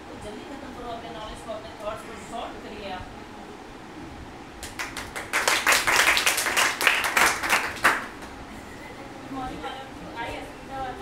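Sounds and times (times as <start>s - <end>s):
small group clapping: 4.6s - 8.4s.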